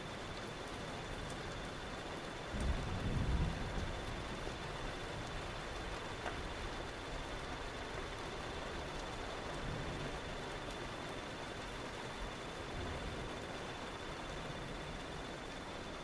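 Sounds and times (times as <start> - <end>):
rain hiss: 0.0 - 16.0
thunder rumble: 2.5 - 4.5.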